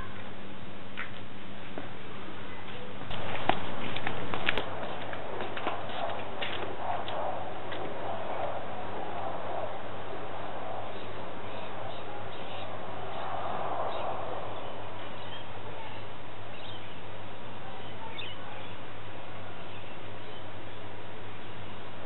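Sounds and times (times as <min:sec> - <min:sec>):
low hum: 0:00.0 - 0:18.1
faint bird chirps: 0:17.7 - 0:18.8.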